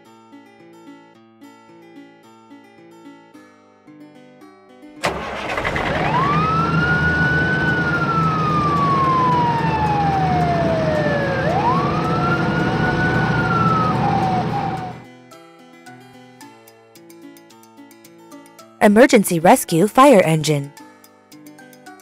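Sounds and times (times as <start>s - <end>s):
engine rumble: 5.0s - 15.0s
wind-up siren: 5.4s - 15.0s.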